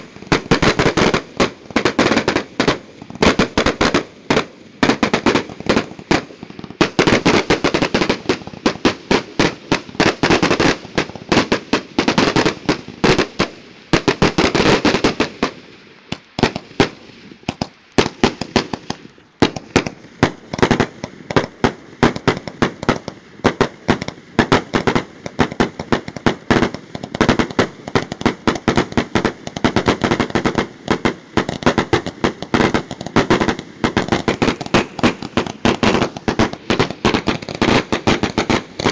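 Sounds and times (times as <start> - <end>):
fireworks bangs and pops: 0.0 - 38.9.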